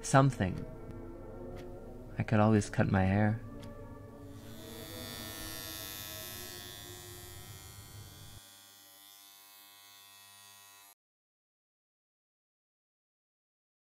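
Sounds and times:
electric hair clippers buzzing: 4.3 - 11.0.

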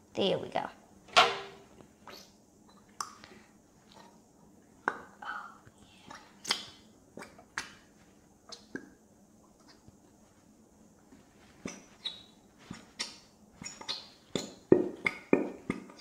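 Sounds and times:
glue bottle squeezed pops and squelches: 11.6 - 16.0.

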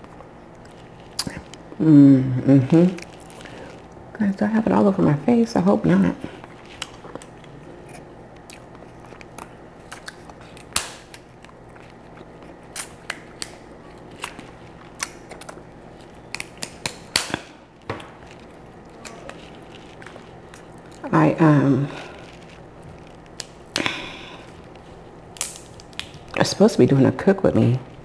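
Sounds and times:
shell cracking: 8.3 - 21.1, 22.0 - 26.4
shears snipping shell: 16.3 - 18.2.

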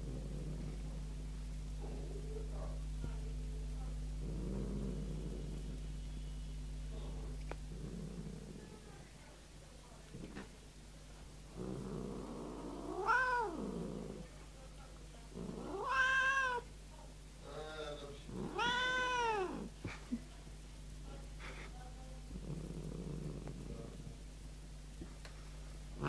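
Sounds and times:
cat growling: 0.0 - 1.1, 3.9 - 6.0, 7.1 - 9.0, 11.5 - 14.4, 15.3 - 16.7, 17.8 - 19.9, 22.2 - 24.2
cat yowling: 12.9 - 13.6, 15.6 - 16.7, 18.5 - 19.7.

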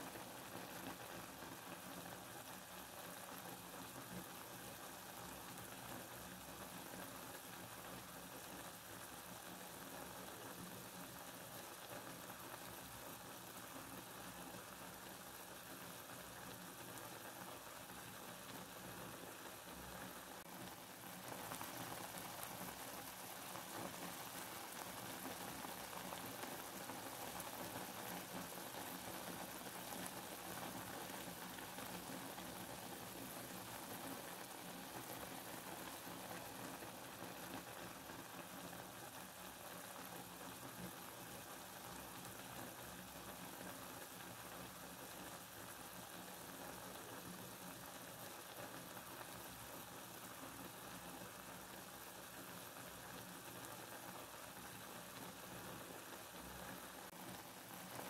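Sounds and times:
rain falling: 47.7 - 58.0.

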